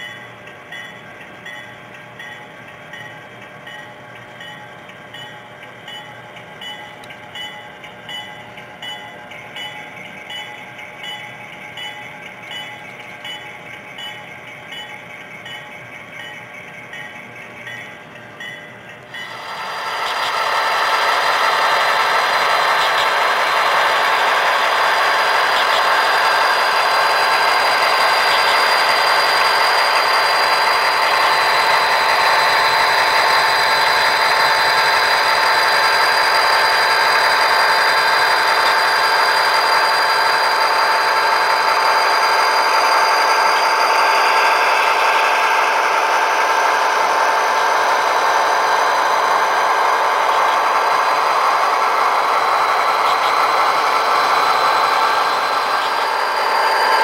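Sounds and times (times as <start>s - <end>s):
model train motor whine: 19.1s - 57.0s.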